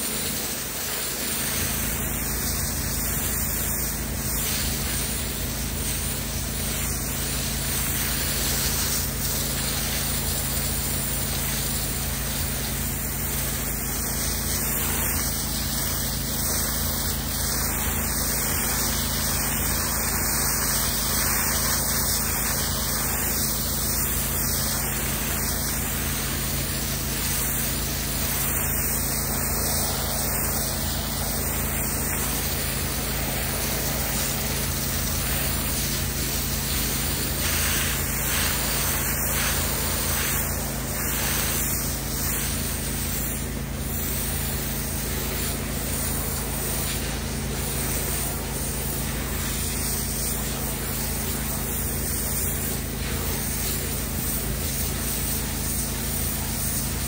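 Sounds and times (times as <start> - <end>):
pressure washer spray hissing: 0.0 - 57.0
low machine hum: 13.0 - 41.4.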